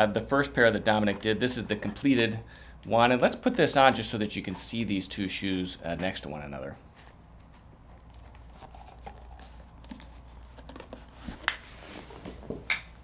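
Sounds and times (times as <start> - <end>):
soft rustling: 6.8 - 12.6.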